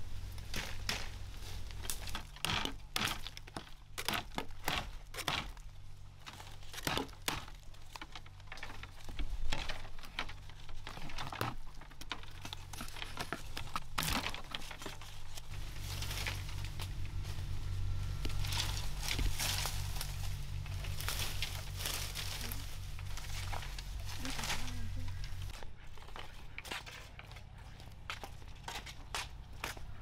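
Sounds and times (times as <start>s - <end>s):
dry leaves crackling and rustling: 0.0s - 3.9s, 4.8s - 30.0s
machete chopping bamboo: 1.8s - 5.6s, 6.7s - 7.6s.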